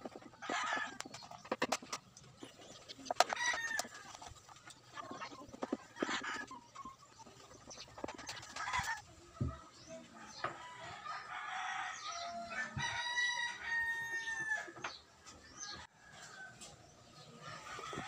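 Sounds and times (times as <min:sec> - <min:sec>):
chicken clucking: 0:00.0 - 0:10.6
rooster crowing: 0:10.6 - 0:14.8.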